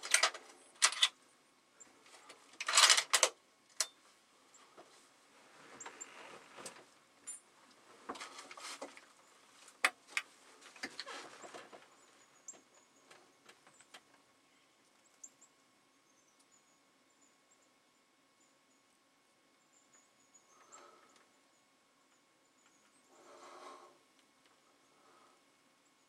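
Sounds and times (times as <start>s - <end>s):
faint rustling: 4.0s - 14.0s.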